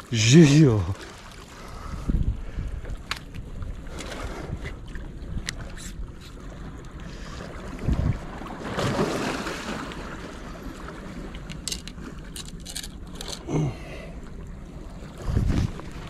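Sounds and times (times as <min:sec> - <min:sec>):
water lapping against rocks: 0:00.0 - 0:16.0
wind blowing across microphone: 0:01.8 - 0:06.0, 0:07.7 - 0:08.4, 0:15.2 - 0:16.0
fishing reel clicks and rustles: 0:11.3 - 0:13.5.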